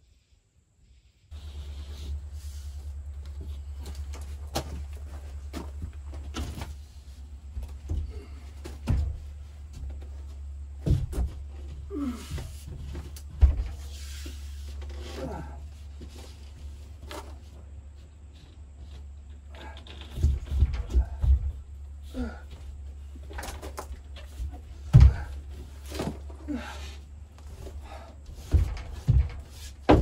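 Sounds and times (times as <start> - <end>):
person grunting with effort: 11.8 - 12.5, 22.1 - 22.6, 26.4 - 27.0
wallboard knocking against framing: 28.4 - 30.0.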